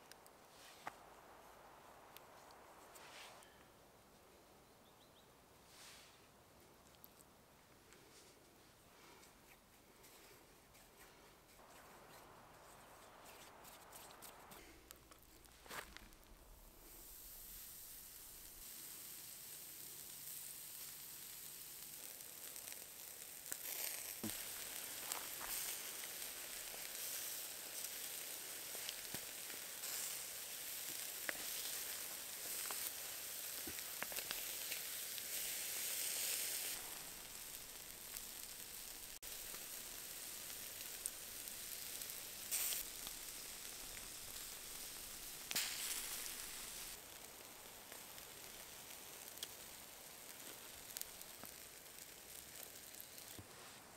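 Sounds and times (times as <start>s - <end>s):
embers crackling and popping: 0.0s - 3.7s, 5.7s - 8.4s, 9.0s - 53.9s
chicken sizzling on a grill: 15.2s - 53.8s.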